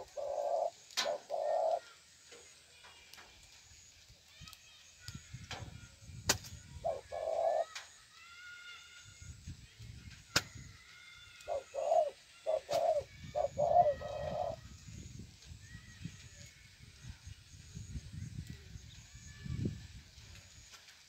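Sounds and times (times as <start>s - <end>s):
doves cooing: 0.0s - 2.0s, 6.8s - 7.8s, 11.3s - 14.6s.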